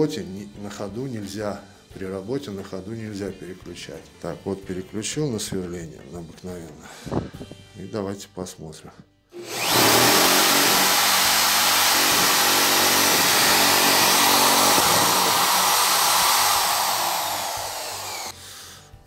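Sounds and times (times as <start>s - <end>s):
electric drill boring into wood: 9.4s - 18.4s.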